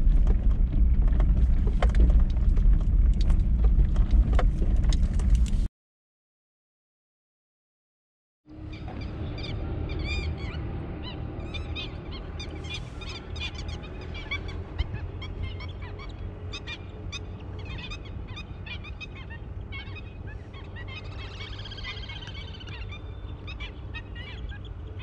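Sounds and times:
low rumble: 0.0 - 5.7
water birds calling: 8.5 - 25.0.

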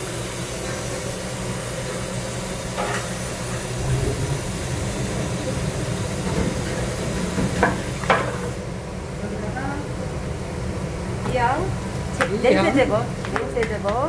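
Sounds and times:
water stream running into kettle: 0.0 - 8.7
low steady hum: 2.2 - 12.2.

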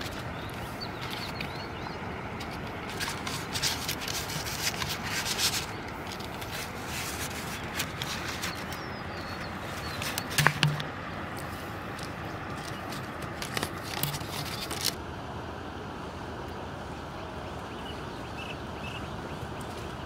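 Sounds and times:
steady outdoor hiss: 0.0 - 20.0
plastic bottles rustling: 2.4 - 8.8, 9.8 - 15.0.

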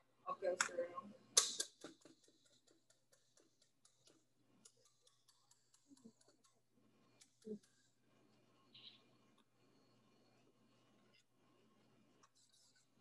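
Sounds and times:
wire whisk clicking against bowl: 1.4 - 6.6.

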